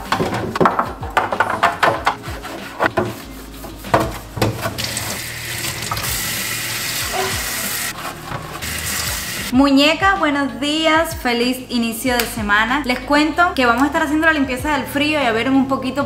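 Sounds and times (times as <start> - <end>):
plastic bins clattering in sink: 0.0 - 6.2, 8.0 - 9.1
faucet water running: 4.0 - 9.5.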